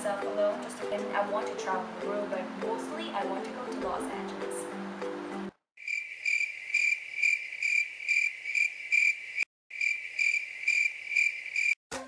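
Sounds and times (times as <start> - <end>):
cricket chirping: 5.8 - 11.8.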